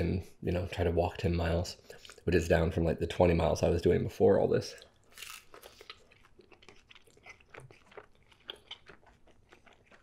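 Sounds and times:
chewing crunchy pizza: 4.8 - 10.0.

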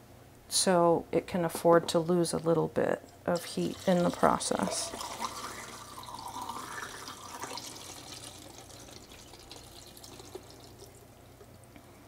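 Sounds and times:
liquid pouring into a tank: 3.4 - 11.6.

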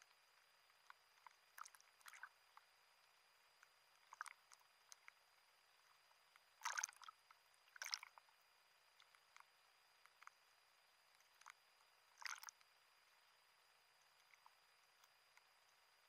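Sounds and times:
small waves splashing and lapping: 1.6 - 2.3, 6.6 - 7.1, 7.7 - 8.2, 12.1 - 12.6.

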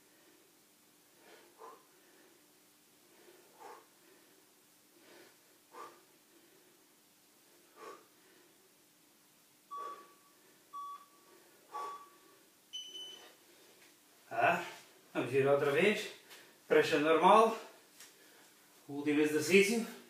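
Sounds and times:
man breathing hard: 0.0 - 8.8, 9.7 - 10.7, 11.3 - 12.5
workout timer beeps: 9.7 - 13.3.

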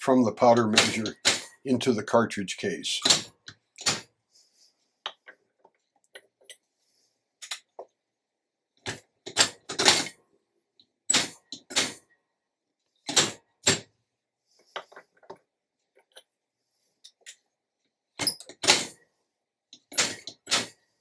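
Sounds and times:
metal clicks and clacks: 0.6 - 1.6.

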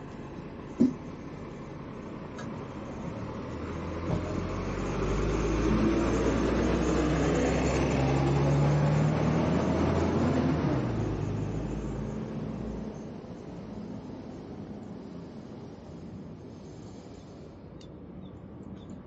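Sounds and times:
bus engine rumble: 0.0 - 19.0.

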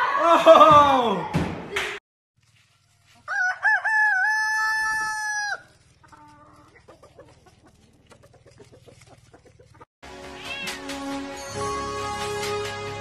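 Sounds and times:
rooster crowing: 3.3 - 5.8.

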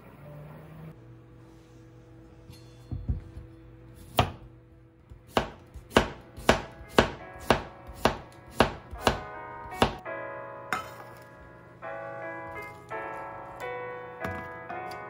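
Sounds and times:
knife chopping on cutting board: 4.0 - 4.5, 5.3 - 10.0.

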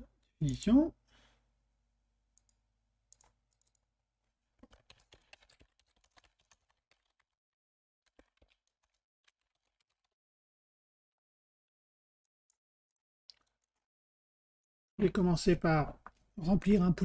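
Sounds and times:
keyboard typing: 2.4 - 3.9, 4.6 - 7.3, 8.1 - 10.2.

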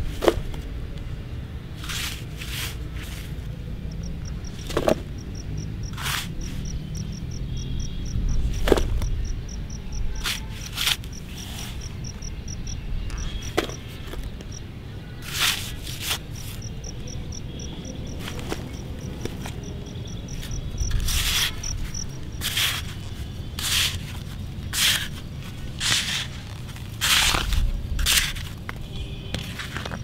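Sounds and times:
toy shovel scraping soil: 1.8 - 7.2, 10.1 - 12.2, 15.2 - 16.8, 20.3 - 28.6
insect chirping: 3.8 - 14.6, 16.3 - 22.5.

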